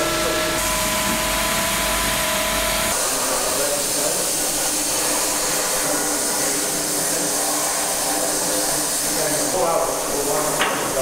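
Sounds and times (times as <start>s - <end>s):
milling machine whine: 0.0s - 11.0s
air gun spraying grit: 2.9s - 11.0s.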